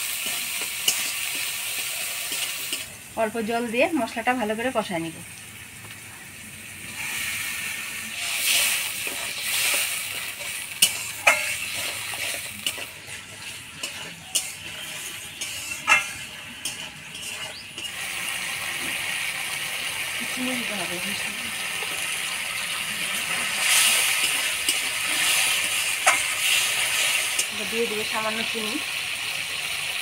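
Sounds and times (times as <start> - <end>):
spatula scraping and clinking on pan: 0.0 - 2.9, 8.2 - 19.0, 23.3 - 27.7
spice paste sizzling in a pan: 0.0 - 30.0.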